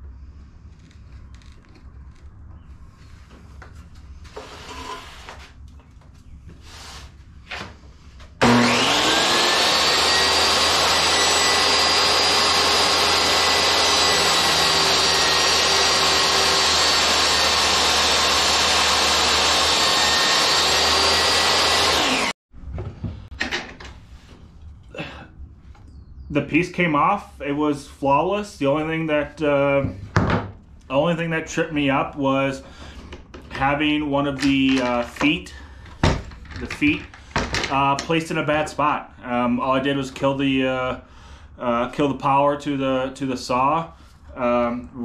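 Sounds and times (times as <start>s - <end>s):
table saw whining: 4.3s - 5.5s, 8.2s - 22.4s.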